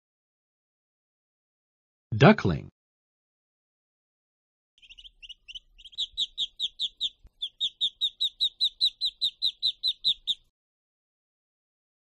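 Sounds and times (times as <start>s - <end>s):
ducklings peeping: 4.8s - 10.5s.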